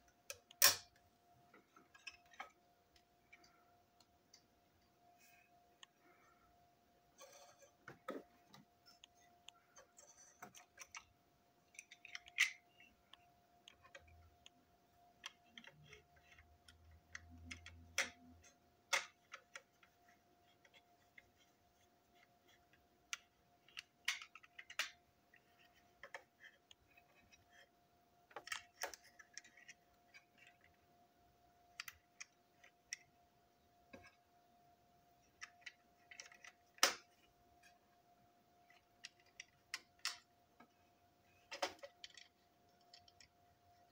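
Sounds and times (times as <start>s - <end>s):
faint steady hum: 0.0s - 43.9s
plastic parts clicking: 7.9s - 14.6s, 15.2s - 21.5s, 22.1s - 27.7s, 28.3s - 30.8s, 35.2s - 37.2s, 38.6s - 40.8s, 41.4s - 43.9s.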